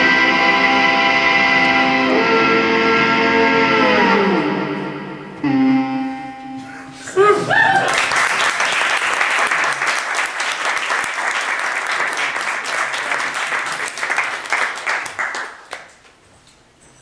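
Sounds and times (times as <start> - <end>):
audience applauding: 7.4 - 16.0.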